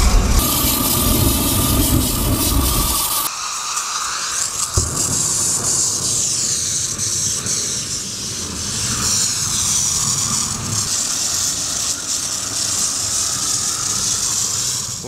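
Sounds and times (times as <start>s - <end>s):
low rumble: 0.0s - 3.3s
propane burner flame hissing: 0.0s - 15.0s.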